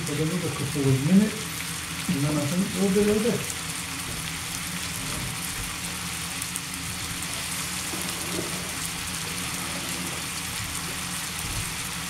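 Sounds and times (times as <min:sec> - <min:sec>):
food sizzling in frying pan: 0:00.0 - 0:12.0.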